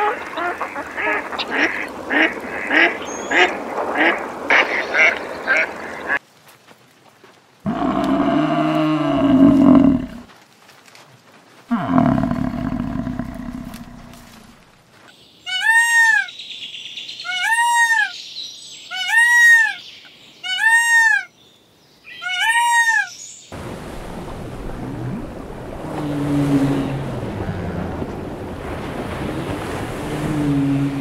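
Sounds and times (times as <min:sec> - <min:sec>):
peacock calling: 0:00.0 - 0:06.2, 0:15.4 - 0:16.4, 0:17.2 - 0:18.2, 0:18.8 - 0:21.3, 0:22.1 - 0:23.3
rush of sea water: 0:00.0 - 0:06.4, 0:07.2 - 0:10.3, 0:11.3 - 0:15.0, 0:23.5 - 0:31.0.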